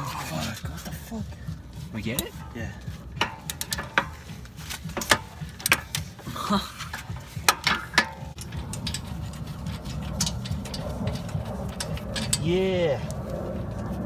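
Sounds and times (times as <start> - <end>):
low steady rumble: 0.0 - 14.0.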